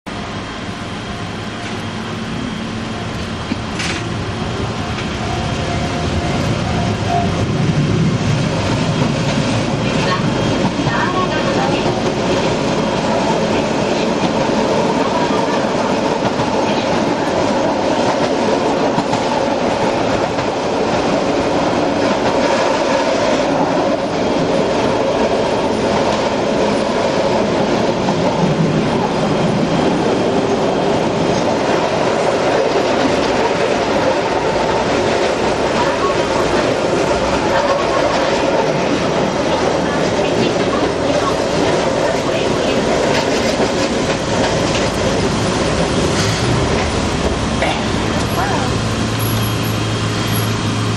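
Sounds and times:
train wheels on rails: 0.1s - 50.9s.

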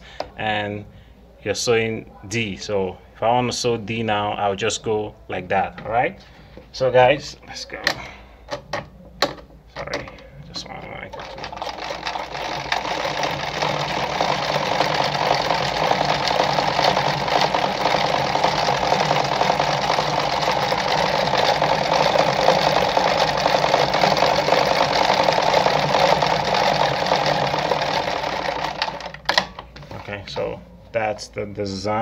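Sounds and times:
sewing machine stitching: 11.1s - 29.5s.

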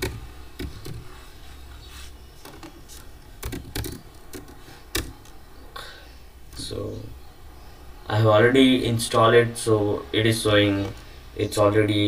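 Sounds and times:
computer keyboard typing: 2.5s - 5.4s.

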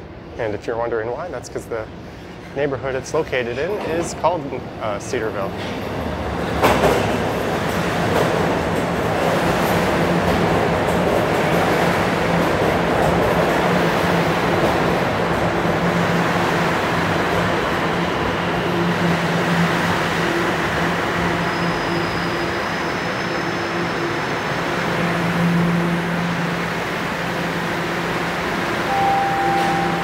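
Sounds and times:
subway train rumbling: 0.0s - 30.0s
faint high whine: 28.9s - 30.0s.

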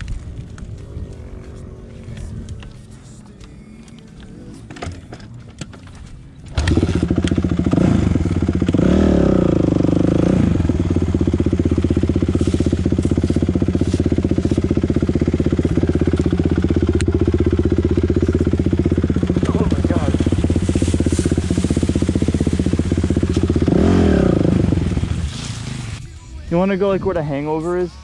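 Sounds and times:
dirt bike engine revving: 6.5s - 26.0s.

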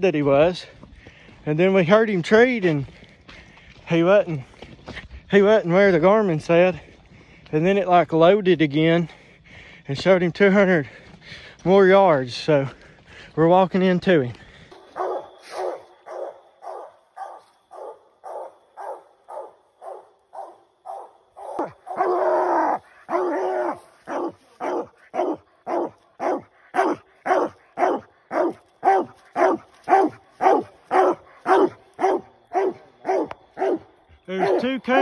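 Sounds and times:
hound barking: 14.7s - 35.0s.

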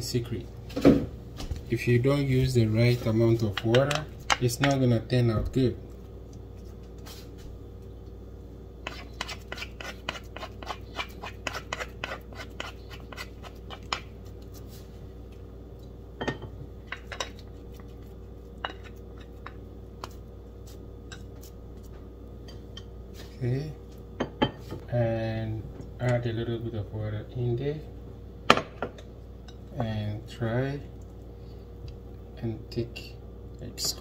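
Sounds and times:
utensils scraping a glass bowl: 8.8s - 13.8s.

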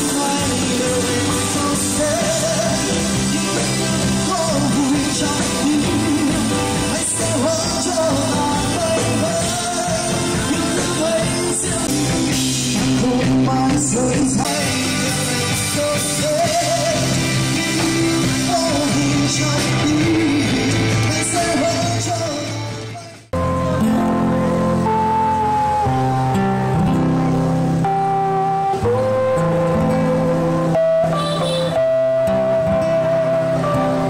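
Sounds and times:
upbeat rock song with vocals: 0.0s - 23.8s
guitar piece: 0.0s - 34.0s.

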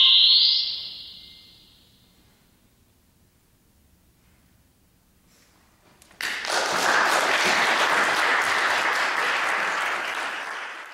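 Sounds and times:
audience applause: 6.2s - 10.9s.

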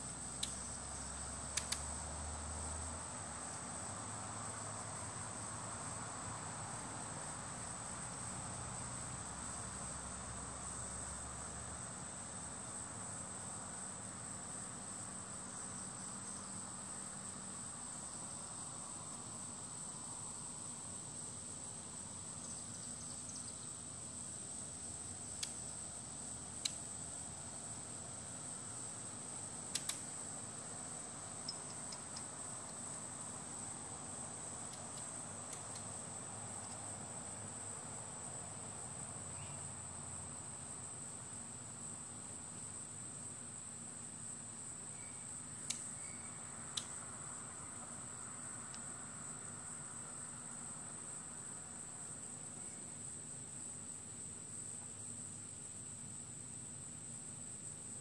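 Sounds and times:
crickets trilling: 0.0s - 58.0s
sharp clicks: 1.6s - 1.9s, 29.7s - 30.1s.

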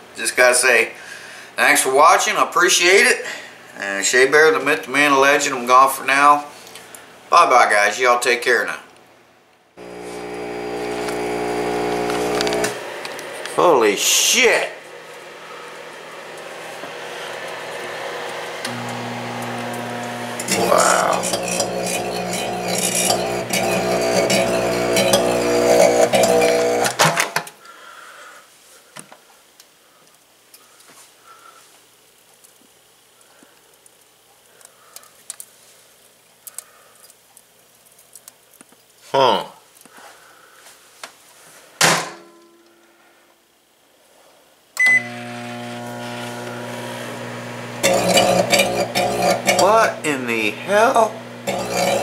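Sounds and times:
crackling of arcing sparks: 9.8s - 14.4s, 18.3s - 27.2s, 29.6s - 40.0s, 45.0s - 52.0s
microwave oven humming: 9.8s - 27.1s, 44.8s - 52.0s
faint ticks and crackles: 28.9s - 39.1s.

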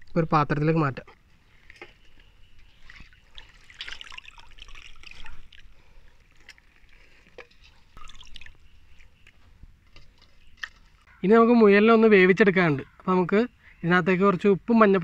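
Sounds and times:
water dripping: 1.7s - 11.1s
soft wet splashes: 2.6s - 9.4s.

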